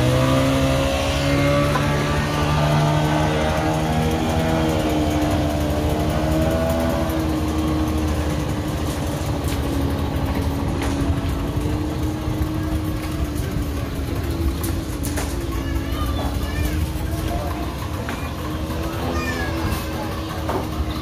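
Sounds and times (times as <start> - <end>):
motorboat engine running: 0.0 - 21.0.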